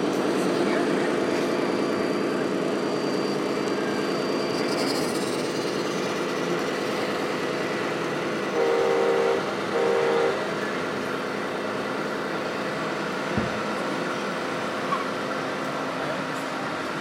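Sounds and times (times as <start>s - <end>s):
steady diesel engine drone: 0.0s - 17.0s
air horn blasts: 8.5s - 10.5s.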